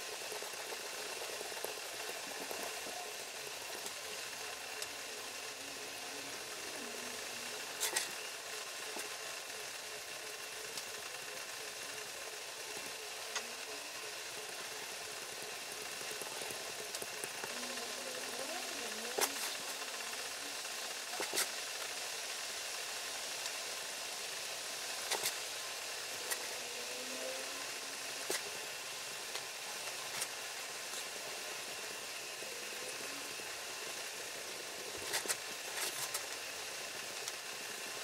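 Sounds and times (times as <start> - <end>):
pyrography pen sizzling on wood: 14.9 - 21.9.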